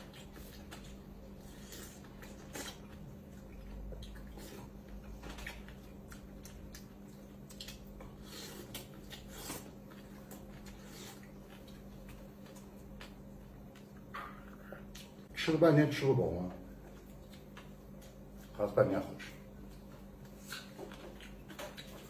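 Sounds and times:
fruit being peeled and chewed: 0:00.0 - 0:15.6, 0:16.3 - 0:22.0
steady low hum: 0:00.0 - 0:22.0.

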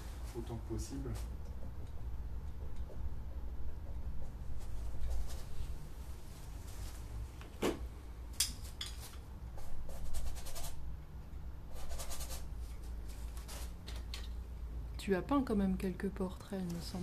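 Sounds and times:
steady low hum: 0:00.0 - 0:17.0
paintbrush scratching on canvas: 0:03.8 - 0:05.8, 0:09.6 - 0:10.8, 0:11.7 - 0:12.5.

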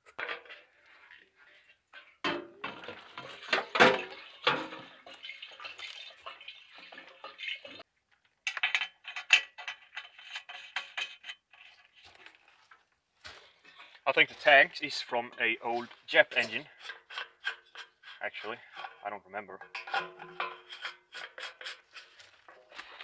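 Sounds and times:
metallic filler cap clicks and rattles: 0:08.4 - 0:11.7, 0:19.6 - 0:22.1.

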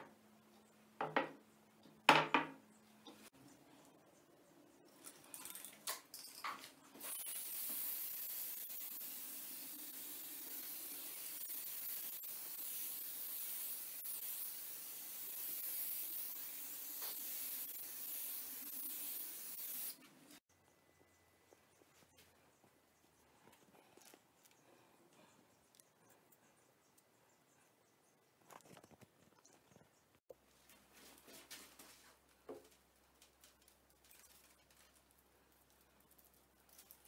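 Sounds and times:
aerosol can spraying: 0:07.0 - 0:20.1.

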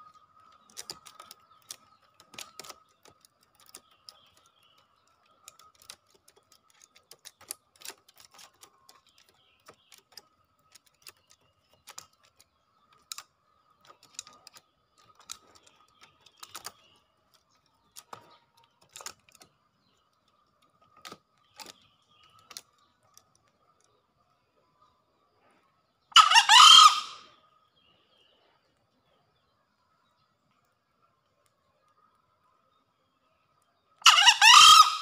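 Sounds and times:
junglefowl crowing: 0:26.1 - 0:27.3, 0:34.0 - 0:35.0.

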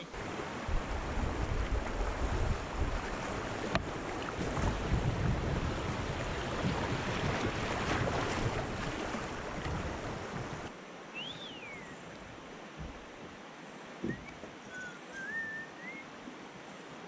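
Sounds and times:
river water rushing: 0:00.0 - 0:17.0
wind rumbling on microphone: 0:00.2 - 0:10.7
short rising and falling whistle: 0:11.2 - 0:12.0, 0:14.1 - 0:16.1.

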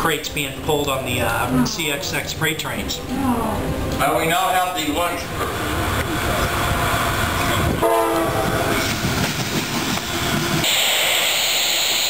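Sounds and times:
diesel locomotives rumbling: 0:00.0 - 0:12.0
rattling train wheels and cars: 0:03.7 - 0:12.0
train horn blast: 0:07.4 - 0:08.9.

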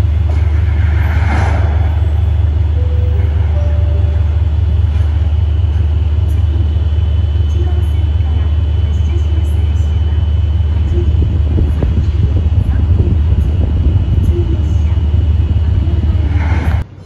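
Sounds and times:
diesel locomotive idling: 0:00.0 - 0:17.0
faint high tone: 0:02.7 - 0:04.8.

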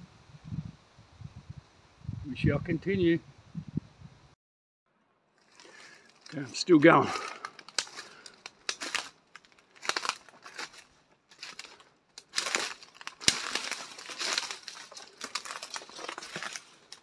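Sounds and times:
footsteps crunching through dry leaves: 0:05.4 - 0:17.0
twig snapping: 0:07.2 - 0:17.0.

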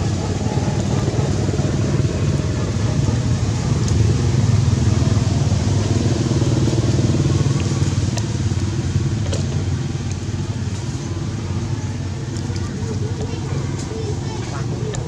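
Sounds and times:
engine running: 0:00.0 - 0:15.0.

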